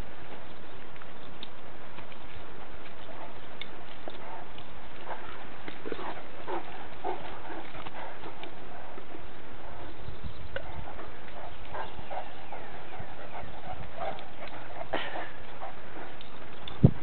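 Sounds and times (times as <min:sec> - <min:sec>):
dogs yelping barks: 0:03.0 - 0:16.2.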